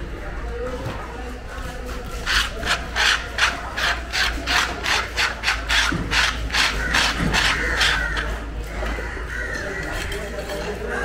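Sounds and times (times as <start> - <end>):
scraping wet wooden chopping block: 1.9 - 8.5.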